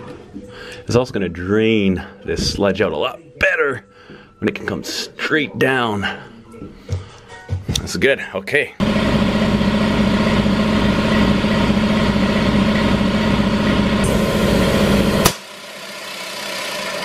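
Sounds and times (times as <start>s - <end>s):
air compressor pump running: 8.8s - 17.0s
sharp pop: 15.2s - 15.5s.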